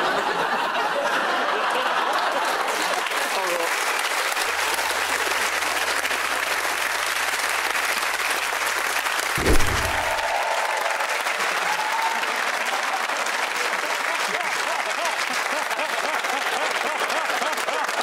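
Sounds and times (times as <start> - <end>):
audience applauding: 2.1 - 18.0
low thump: 9.4 - 10.3.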